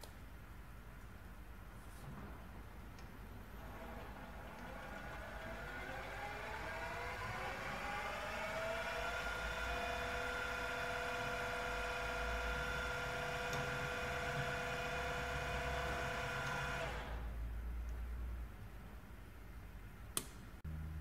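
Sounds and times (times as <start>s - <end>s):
drill spindle whining: 3.6s - 17.2s.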